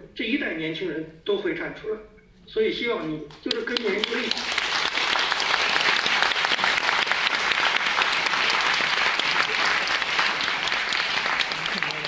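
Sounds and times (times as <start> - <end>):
audience applauding: 3.5 - 12.0.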